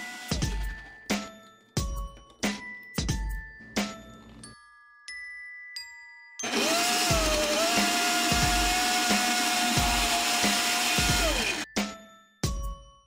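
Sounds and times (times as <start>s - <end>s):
blender motor whine: 0.0s - 0.8s, 6.4s - 11.7s.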